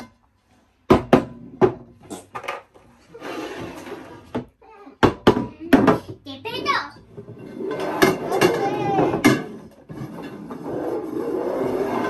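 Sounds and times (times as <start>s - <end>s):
bowl scraping across table: 3.0s - 4.4s, 6.9s - 12.0s.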